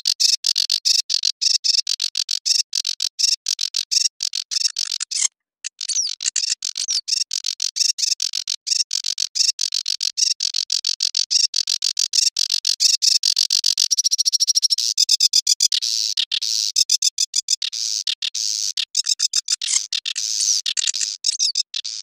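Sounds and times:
warbler singing: 5.7 - 7.2, 13.9 - 22.0.

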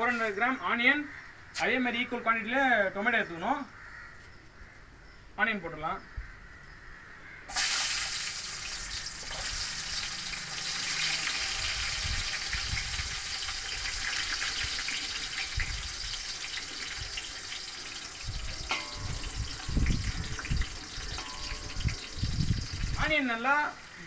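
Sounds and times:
onions sizzling in hot oil: 7.5 - 24.0.

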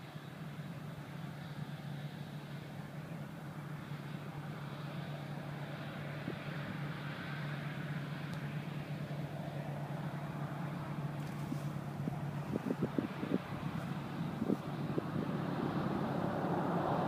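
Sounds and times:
distant jet engines roaring: 0.0 - 17.0.

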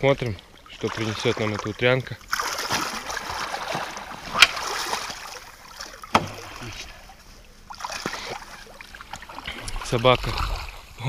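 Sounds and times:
shallow water sloshing and splashing: 0.0 - 11.0
sharp knocks: 6.1 - 6.4.

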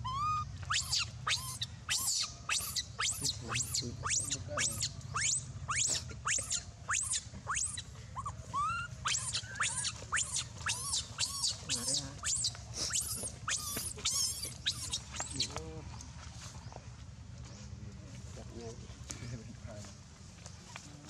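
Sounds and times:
lower short monkey calls: 0.0 - 15.5
baby monkey squealing: 0.0 - 15.6.

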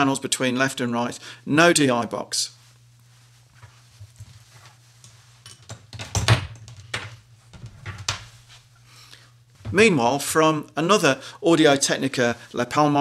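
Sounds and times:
steady low hum: 0.0 - 13.0
lapel microphone rustling and clicking: 2.7 - 8.7.

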